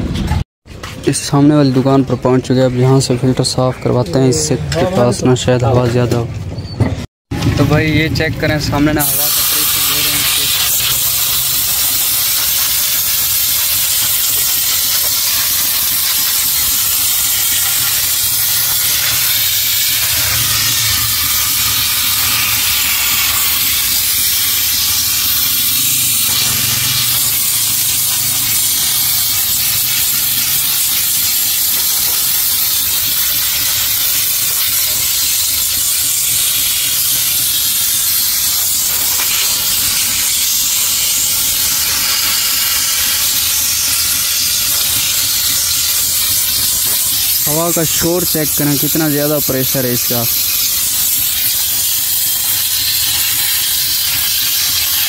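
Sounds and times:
air blow gun hissing: 9.0s - 55.0s.

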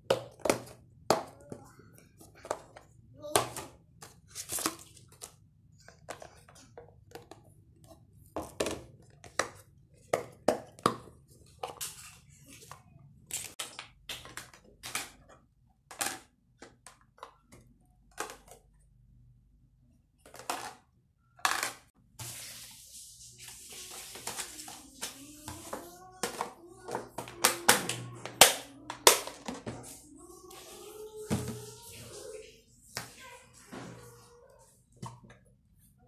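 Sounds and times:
plastic containers clicking and clattering: 8.2s - 18.9s, 20.2s - 21.9s, 24.2s - 29.9s.

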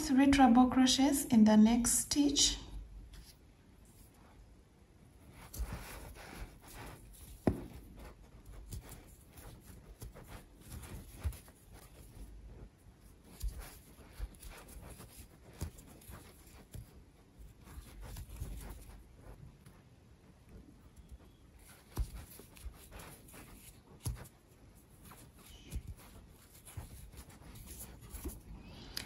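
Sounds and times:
crochet hook pulling yarn: 5.2s - 19.7s, 20.8s - 28.5s.

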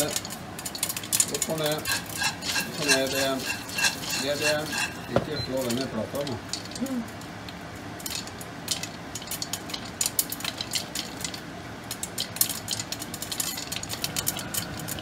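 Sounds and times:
popcorn popping in a pot: 0.0s - 15.0s.

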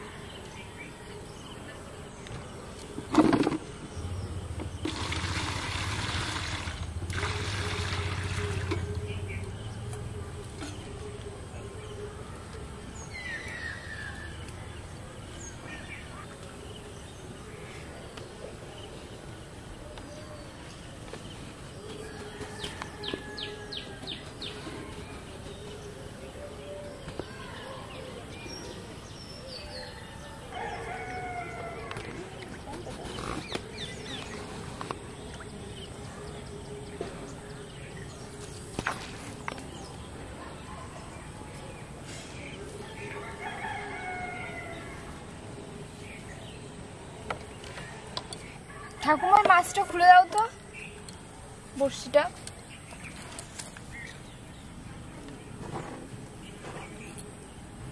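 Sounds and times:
small birds calling: 7.8s - 45.2s
rooster crowing: 22.0s - 24.1s, 30.2s - 32.1s, 43.1s - 45.2s.

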